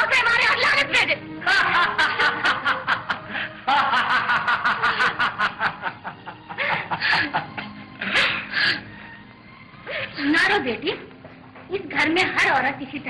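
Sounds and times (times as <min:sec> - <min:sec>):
loud laughter: 0:01.4 - 0:08.5.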